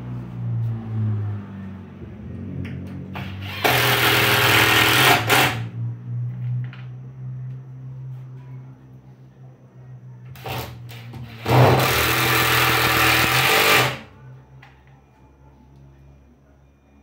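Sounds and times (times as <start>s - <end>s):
cordless drill whining into wood: 3.2s - 5.6s, 11.3s - 14.0s.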